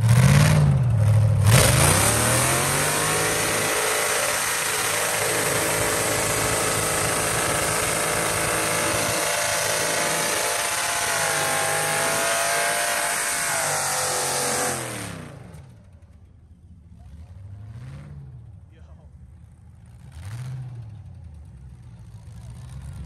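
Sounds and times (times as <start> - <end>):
car engine revving high: 0.0 - 15.7
loud rushing noise: 1.4 - 15.4.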